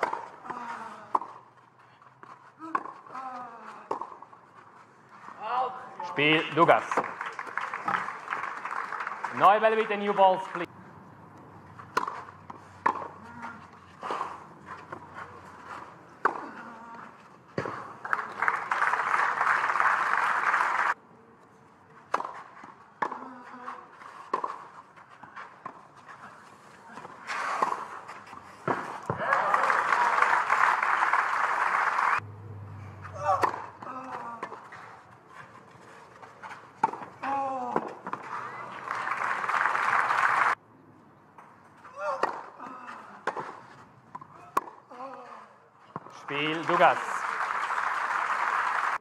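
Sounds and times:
crowd applause: 6.5s - 10.7s, 18.0s - 21.0s, 29.0s - 32.2s, 38.3s - 40.6s, 46.3s - 49.0s
tennis ball hits: 11.8s - 13.5s, 22.1s - 23.2s, 32.2s - 34.6s, 42.0s - 42.6s, 43.2s - 44.8s
ball bounces: 11.9s - 13.5s, 33.0s - 34.6s.

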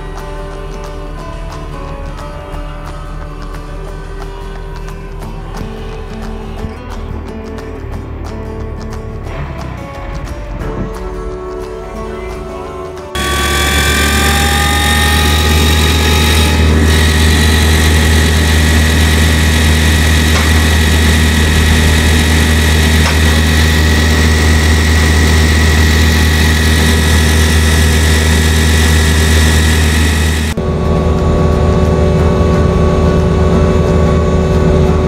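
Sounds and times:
engine drone: 13.1s - 35.0s
mulcher rotor whine: 13.2s - 35.0s.

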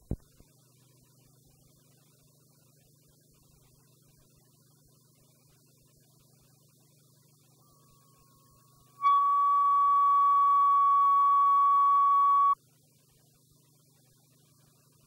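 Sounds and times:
faint low hum: 0.0s - 15.0s
steady reference tone: 9.0s - 12.6s.

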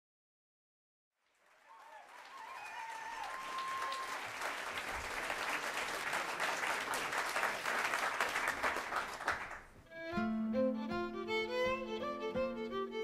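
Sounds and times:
audience applause: 1.2s - 9.8s.

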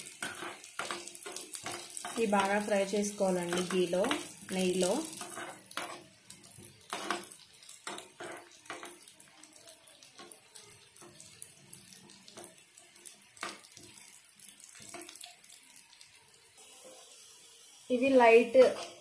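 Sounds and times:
steel spoon scraping a pan: 0.0s - 2.6s, 3.4s - 6.2s, 6.8s - 9.1s
nuts sizzling in oil: 0.0s - 19.0s.

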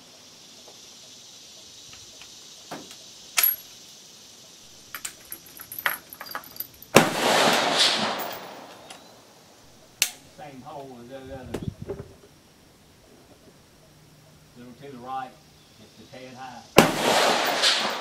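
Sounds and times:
rifle breech metallic clicks: 10.0s - 10.3s.

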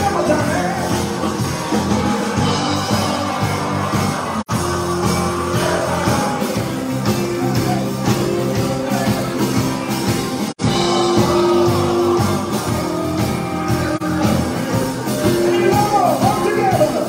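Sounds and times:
live rock band playing: 0.0s - 17.0s
person singing: 4.5s - 8.1s, 10.6s - 17.0s.

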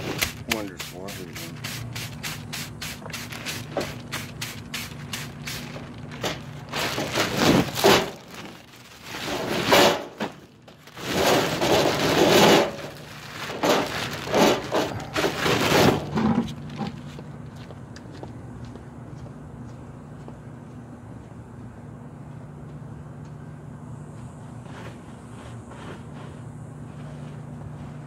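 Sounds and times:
plastic bags crinkling: 1.5s - 17.1s.

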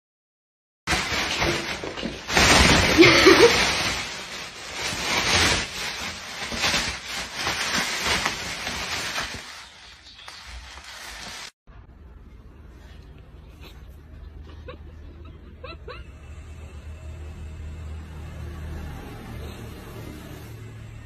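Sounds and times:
plastic bag rustling: 0.9s - 11.6s.

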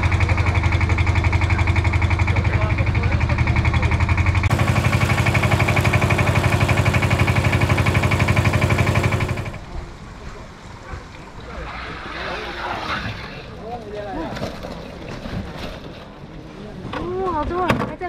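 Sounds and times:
engine idling: 0.0s - 9.7s.

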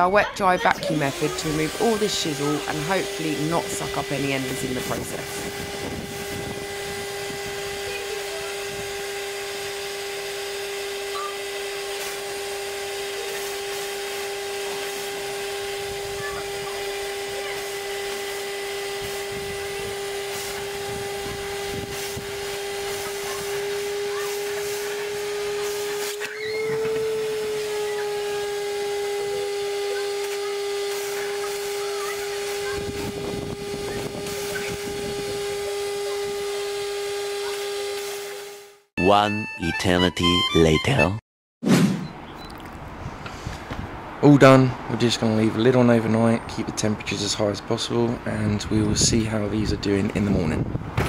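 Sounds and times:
vacuum whining: 0.0s - 40.6s.

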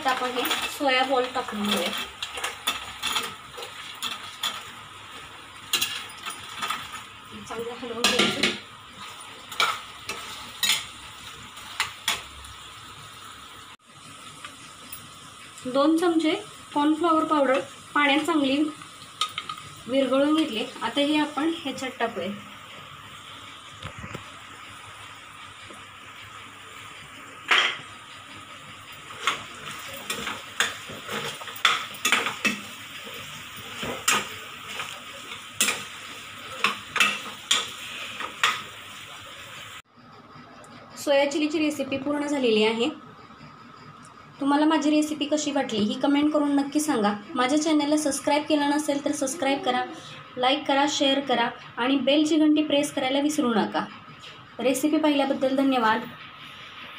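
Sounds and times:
food sizzling: 0.0s - 39.9s
steel spoon scraping a pan: 5.7s - 7.0s, 8.0s - 11.0s, 29.0s - 39.1s.

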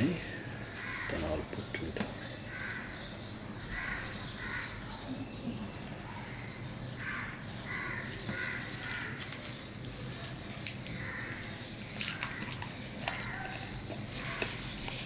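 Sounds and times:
crows cawing: 0.7s - 1.4s, 2.4s - 3.1s, 3.7s - 4.8s, 6.3s - 9.4s, 10.9s - 14.6s.

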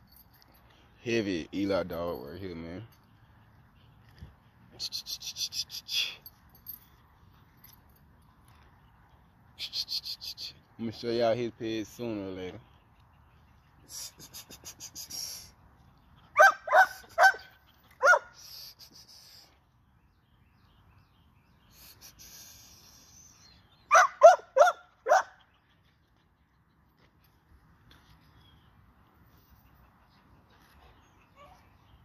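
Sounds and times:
puppy yapping: 16.4s - 18.3s, 23.9s - 25.4s.

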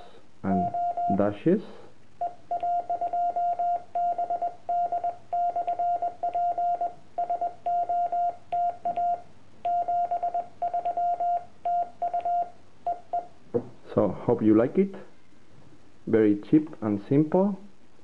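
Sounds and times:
morse code beeps: 0.5s - 1.3s, 2.2s - 13.3s.

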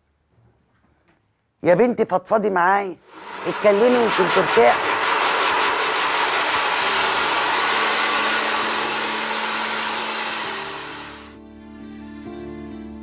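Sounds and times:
hair dryer blowing: 3.0s - 11.4s
soft music: 10.6s - 13.0s.

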